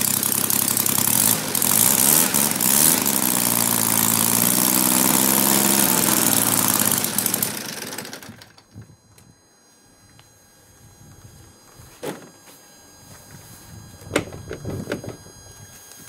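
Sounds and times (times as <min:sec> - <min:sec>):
model airplane engine running: 0:00.0 - 0:09.3, 0:13.1 - 0:16.0.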